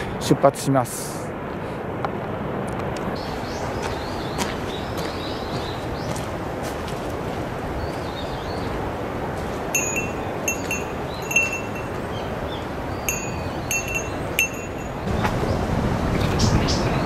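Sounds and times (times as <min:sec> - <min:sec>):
windy hiss: 0:00.0 - 0:17.0
small metal bell ringing: 0:09.7 - 0:12.1, 0:13.1 - 0:15.1.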